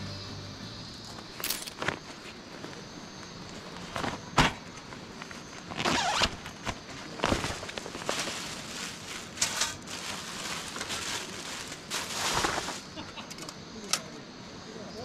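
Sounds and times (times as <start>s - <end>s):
plastic wrapping crinkling: 5.7s - 13.0s.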